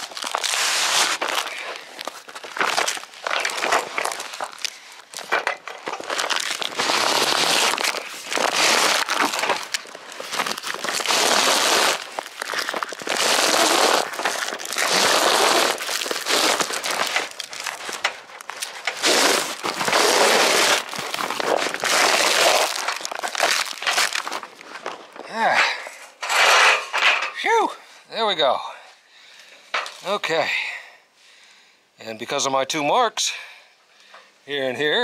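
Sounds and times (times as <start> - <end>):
awning fabric scraping in roller tube: 0.0 - 1.6, 6.2 - 17.9, 18.8 - 24.2.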